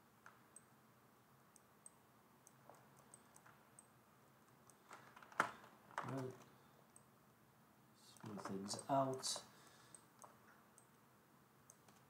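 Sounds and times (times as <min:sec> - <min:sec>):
computer mouse clicks: 0:01.5 - 0:07.1, 0:08.1 - 0:11.0, 0:11.6 - 0:12.0.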